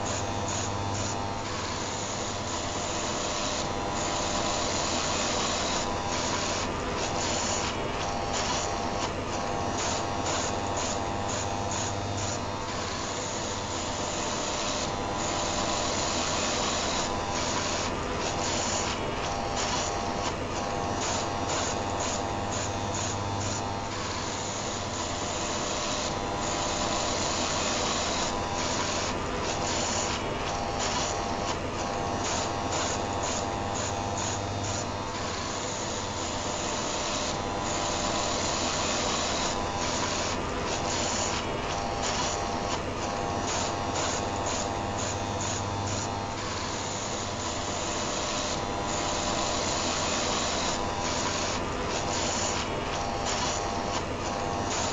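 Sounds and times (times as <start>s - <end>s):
electric heater whirring: 0.0s - 54.9s
electric shaver motor running: 0.0s - 54.9s.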